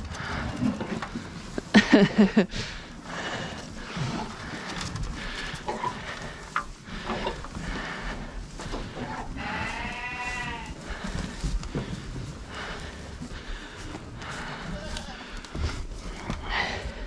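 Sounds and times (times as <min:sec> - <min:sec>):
sheep bleating: 0:09.1 - 0:10.8.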